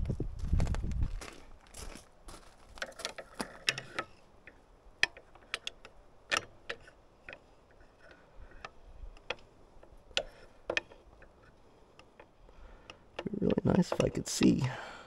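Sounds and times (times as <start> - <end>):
pry bar tapping against metal: 8.6 - 14.2.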